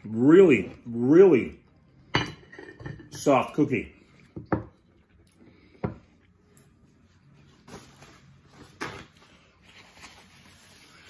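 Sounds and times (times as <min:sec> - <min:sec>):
tableware being handled: 0:02.1 - 0:03.5
paper napkin rustling: 0:07.0 - 0:11.0.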